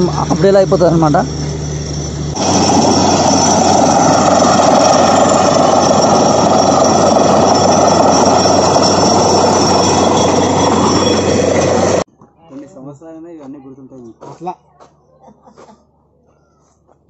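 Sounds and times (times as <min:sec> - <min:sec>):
compressor air rushing: 0:00.0 - 0:12.1
drilling rig engine running: 0:00.0 - 0:12.1.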